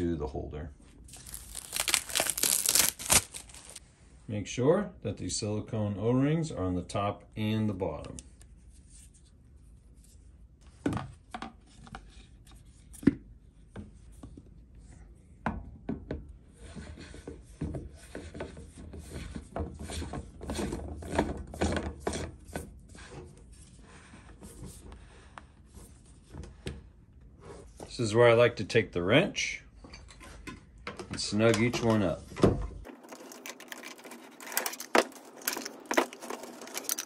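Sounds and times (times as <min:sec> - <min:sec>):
plastic scraping on plastic: 0:32.9 - 0:37.0.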